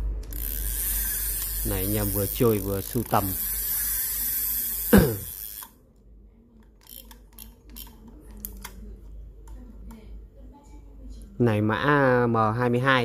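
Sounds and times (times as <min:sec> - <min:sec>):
fishing reel clicking: 0:00.2 - 0:05.8, 0:06.8 - 0:08.8.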